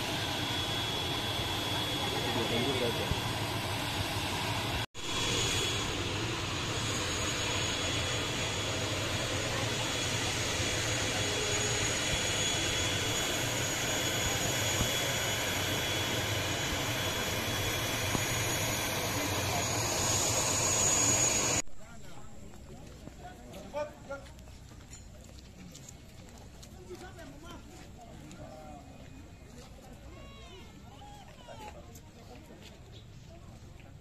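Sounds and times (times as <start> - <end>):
aircraft engines humming: 0.0 - 21.6.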